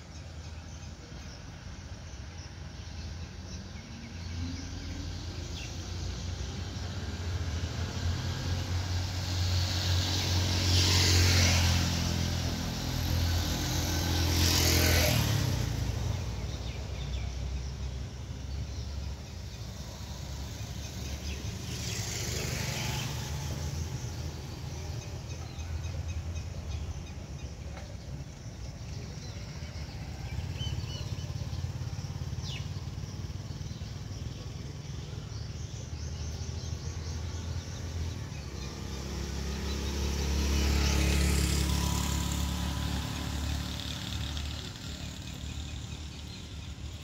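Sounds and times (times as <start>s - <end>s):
motor vehicles driving past: 0.0s - 47.0s.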